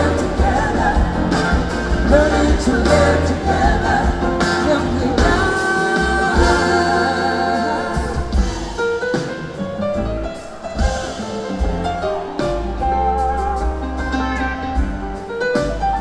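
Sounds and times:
woman singing lead: 0.0 - 8.8
live rock band: 0.0 - 16.0.

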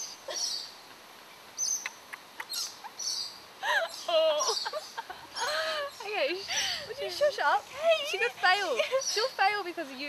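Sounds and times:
women giggling: 3.6 - 9.2.

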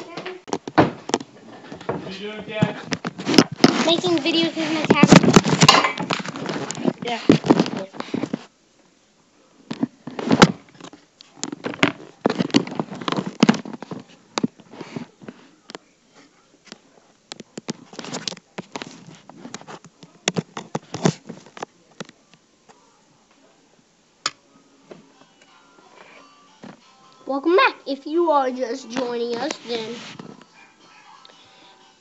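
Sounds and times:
microphone handling noise: 0.5 - 8.5.

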